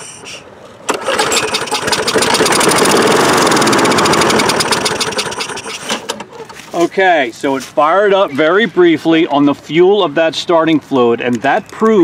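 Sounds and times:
lawn mower engine running: 0:00.2 - 0:06.8.

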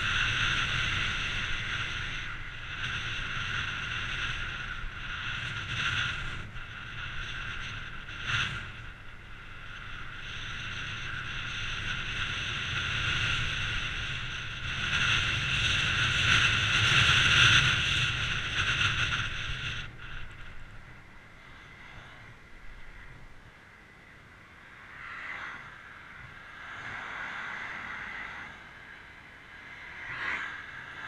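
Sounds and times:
wind on microphone: 0:00.0 - 0:23.5
bicycle tyre noise on tarmac: 0:00.0 - 0:31.0.

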